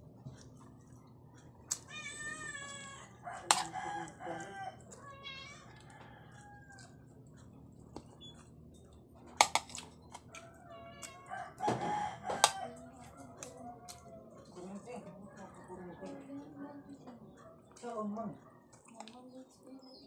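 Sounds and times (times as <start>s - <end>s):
cutlery clinking on a plate: 3.5s - 3.8s.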